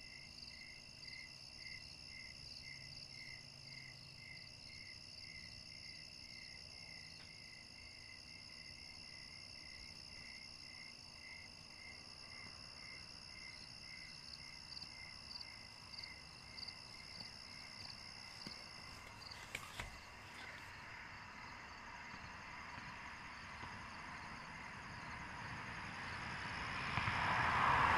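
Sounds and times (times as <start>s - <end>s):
night insects chirping: 0.0s - 27.9s.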